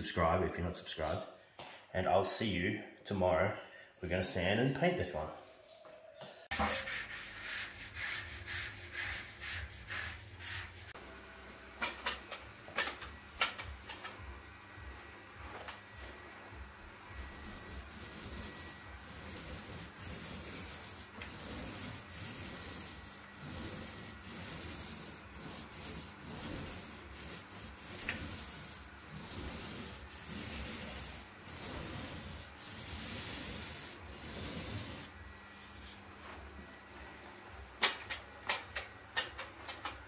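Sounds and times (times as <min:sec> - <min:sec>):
pole sander rubbing drywall: 0:06.5 - 0:11.0, 0:16.9 - 0:36.1.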